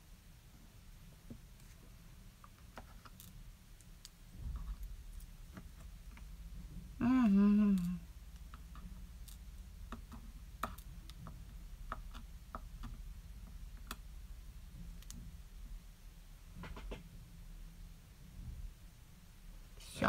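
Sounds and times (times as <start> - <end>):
steady low hum: 0.0 - 20.0
person humming: 7.0 - 8.1.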